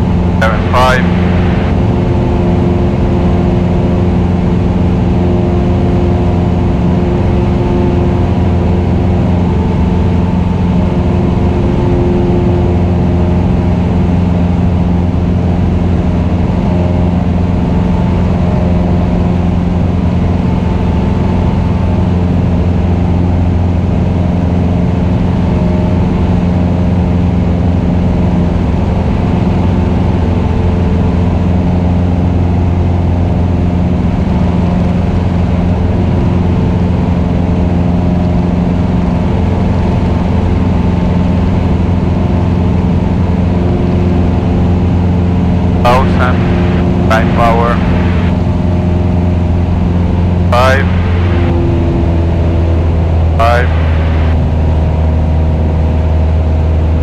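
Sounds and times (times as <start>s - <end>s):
airplane engine and propeller drone: 0.0s - 57.0s.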